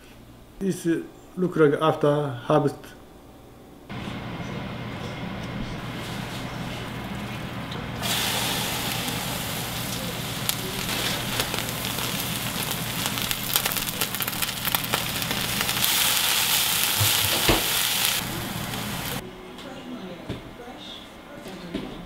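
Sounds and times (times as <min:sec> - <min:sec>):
greens sizzling in a pan: 0:08.0 - 0:19.2.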